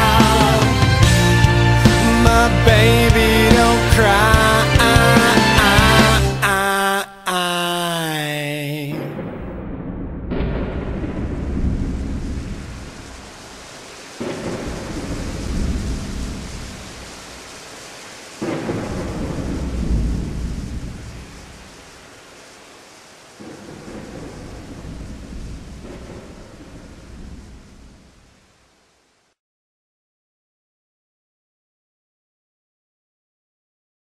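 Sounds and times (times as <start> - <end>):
thunder claps: 0.0 - 6.4, 8.9 - 22.1, 23.4 - 28.4
steady rain: 0.0 - 6.7, 10.4 - 29.4.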